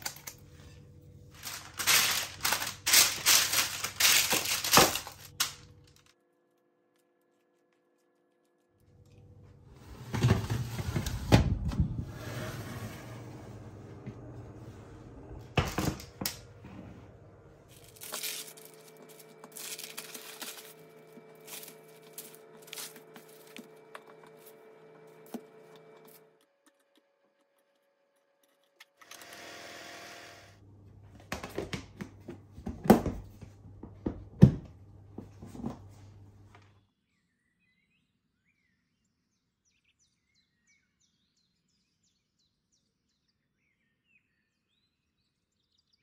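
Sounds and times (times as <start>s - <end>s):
steady hum: 8.8s - 26.4s.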